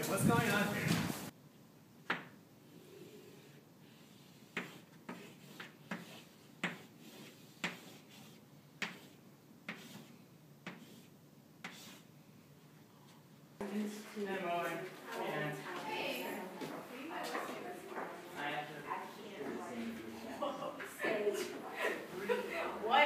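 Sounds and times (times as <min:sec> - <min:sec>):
chalk scraping on blackboard: 0:03.0 - 0:12.1
chalk tapping on blackboard: 0:04.4 - 0:12.1.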